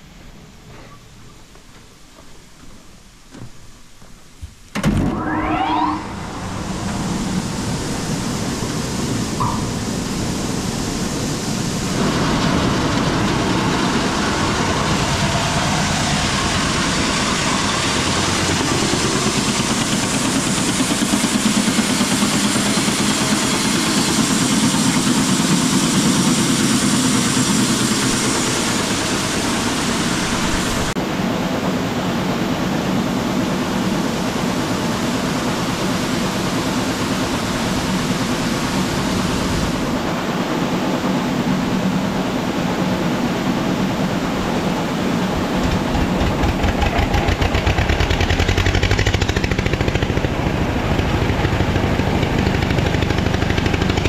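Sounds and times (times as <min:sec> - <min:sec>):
grain auger running: 0:45.2 - 0:54.0.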